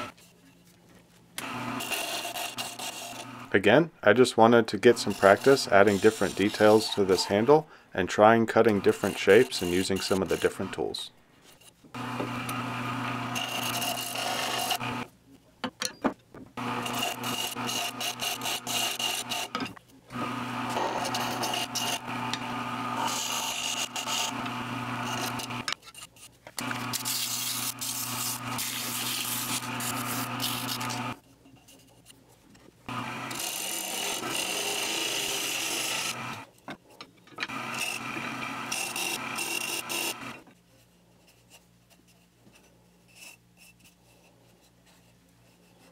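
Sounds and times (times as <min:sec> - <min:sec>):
lathe motor humming: 0:01.4 - 0:03.5, 0:04.9 - 0:07.5, 0:12.0 - 0:15.1, 0:16.6 - 0:25.7, 0:26.6 - 0:31.2, 0:32.9 - 0:36.4, 0:37.5 - 0:40.4
lathe tool scraping wood: 0:01.4 - 0:03.5, 0:04.4 - 0:07.7, 0:08.4 - 0:15.1, 0:16.6 - 0:31.2, 0:32.9 - 0:36.5, 0:37.5 - 0:40.5
sandpaper rubbing spinning wood: 0:01.6 - 0:03.4, 0:04.9 - 0:07.5, 0:08.6 - 0:15.0, 0:16.6 - 0:19.6, 0:20.2 - 0:25.7, 0:26.6 - 0:31.2.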